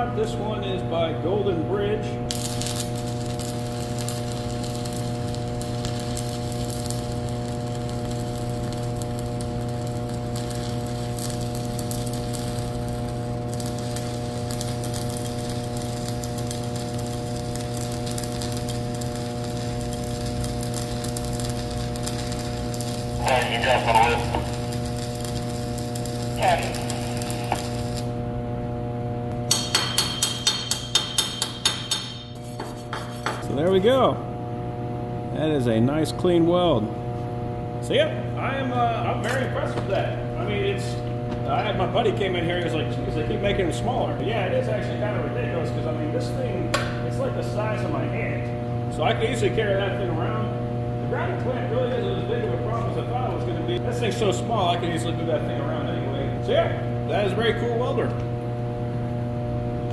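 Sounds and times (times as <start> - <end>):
welding arc crackling: 2.3 - 28.4, 38.4 - 48.4, 49.0 - 59.9
chipping hammer on metal: 29.5 - 32.3.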